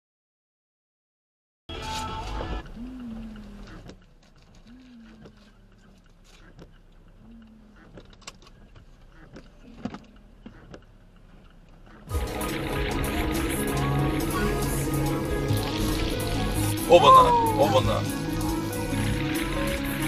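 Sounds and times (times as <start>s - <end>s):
windshield wiper motor whining: 1.8s - 20.0s
faint clicks: 2.2s - 12.1s.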